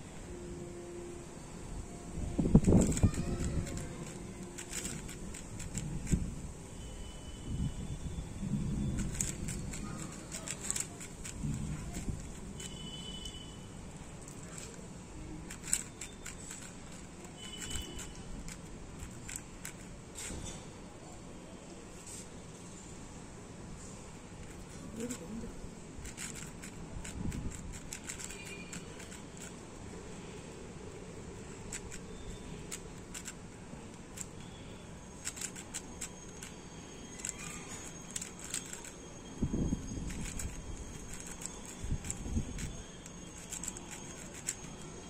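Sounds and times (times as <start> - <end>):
low background noise: 0.0 - 45.0
puzzle cube clicking: 2.4 - 6.3, 8.9 - 12.8, 14.2 - 14.8, 15.4 - 20.4, 24.4 - 29.6, 31.0 - 34.4, 35.2 - 39.0, 39.8 - 44.9.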